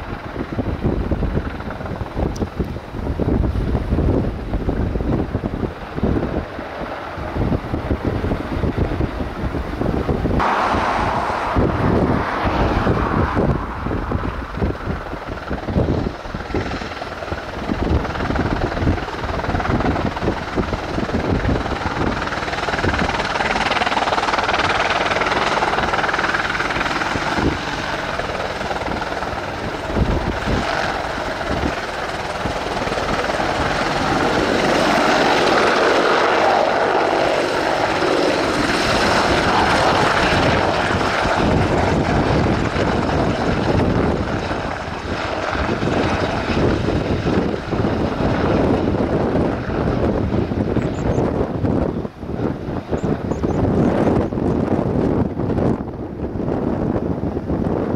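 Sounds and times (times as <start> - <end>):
helicopter rotor and turbine noise: 0.0 - 57.9.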